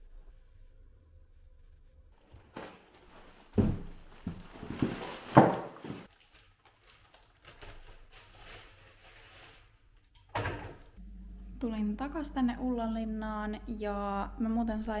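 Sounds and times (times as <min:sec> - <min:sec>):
groceries knocking: 0:02.2 - 0:06.1
shopping bags rustling: 0:02.2 - 0:09.8.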